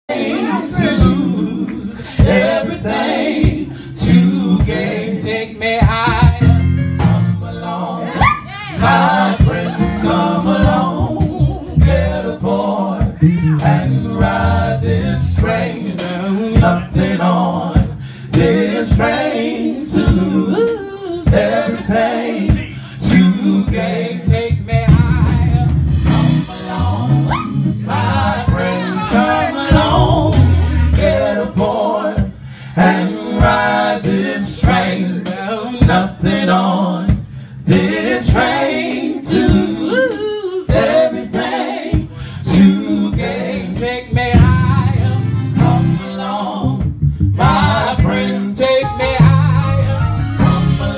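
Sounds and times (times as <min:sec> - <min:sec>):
men singing harmonies: 0:00.1 - 0:06.7, 0:07.3 - 0:50.9
woman singing lead: 0:08.1 - 0:12.0, 0:26.4 - 0:31.0.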